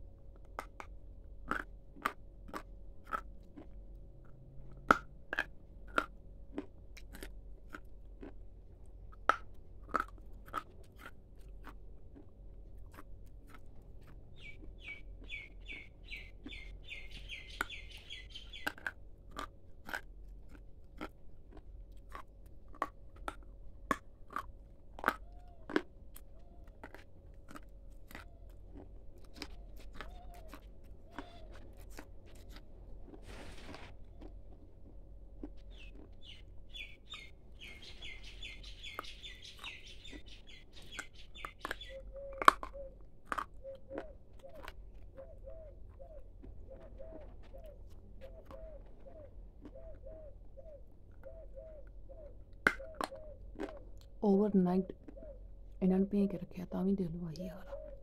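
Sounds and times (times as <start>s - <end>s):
crunching and chewing snack: 0.0s - 54.2s, 54.9s - 55.8s
bird chirping high notes: 36.2s - 42.0s.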